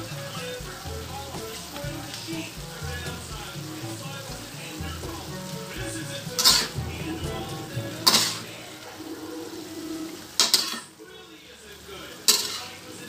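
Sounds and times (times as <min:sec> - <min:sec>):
food sizzling: 0:00.0 - 0:13.0
metal spatula scraping wok: 0:04.3 - 0:11.0, 0:12.3 - 0:12.8.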